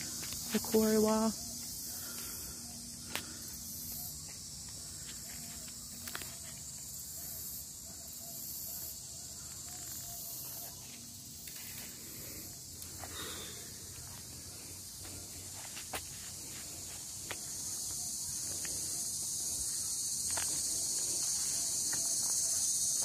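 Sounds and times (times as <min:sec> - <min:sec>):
insects chorus: 0:00.0 - 0:23.0.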